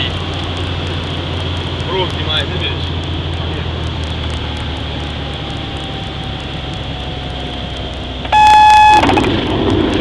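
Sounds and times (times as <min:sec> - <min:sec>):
stall warning horn: 0:08.3 - 0:09.1.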